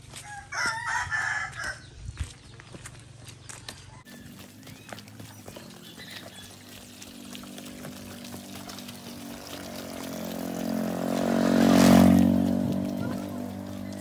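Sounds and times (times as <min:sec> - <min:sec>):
steady engine hum: 0:02.8 - 0:14.0.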